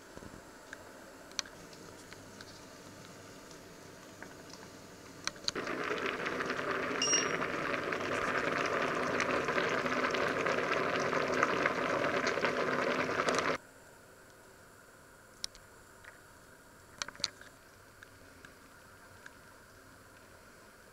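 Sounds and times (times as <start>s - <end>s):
water boiling in a pot: 1.6s - 13.6s
short high electronic beep: 7.0s - 7.4s.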